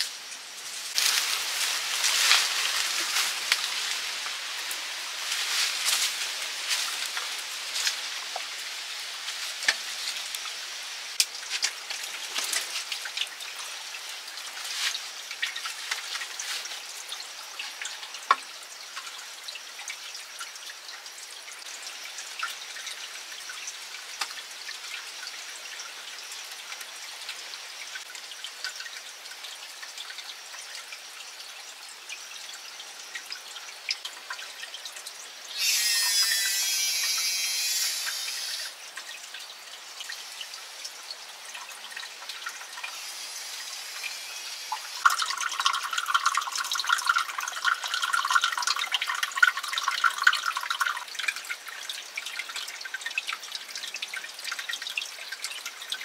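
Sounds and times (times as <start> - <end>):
steady high hiss: 0.0 - 12.9, 35.4 - 38.9, 40.0 - 51.0
water dripping and trickling: 0.0 - 56.0.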